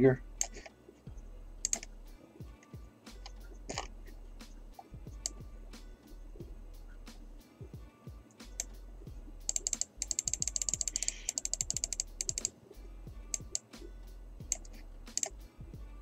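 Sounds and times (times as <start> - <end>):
quiet background music: 0.0 - 16.0
keyboard typing: 0.4 - 0.7, 1.6 - 1.9, 3.7 - 3.9, 9.5 - 12.6, 13.3 - 13.6, 14.5 - 15.4.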